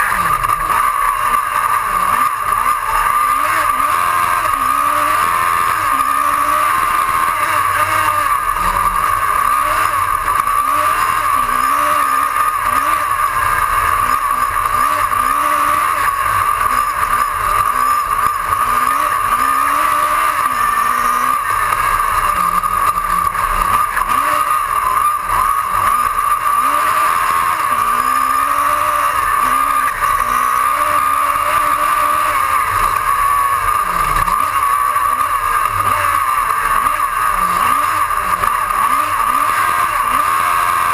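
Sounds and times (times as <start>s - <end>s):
race car engine revving: 0.0s - 40.9s.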